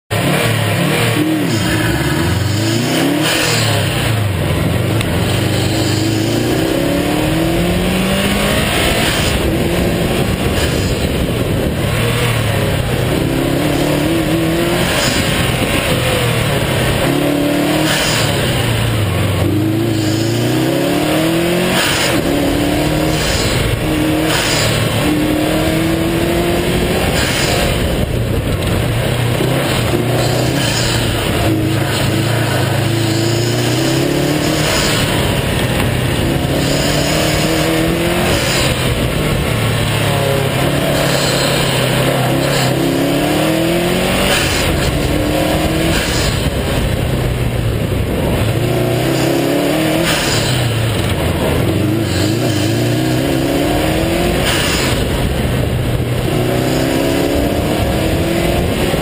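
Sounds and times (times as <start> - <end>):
car engine accelerating and shifting: 0.0 - 59.0.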